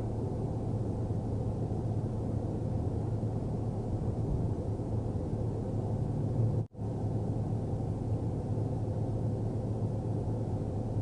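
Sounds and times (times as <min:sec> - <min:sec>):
constant hum: 0:00.0 - 0:11.0
highway traffic rumble: 0:00.0 - 0:11.0.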